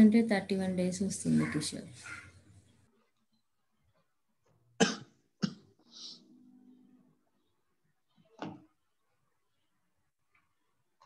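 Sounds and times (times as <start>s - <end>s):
person coughing: 4.8s - 5.7s
throat clearing: 4.8s - 5.7s.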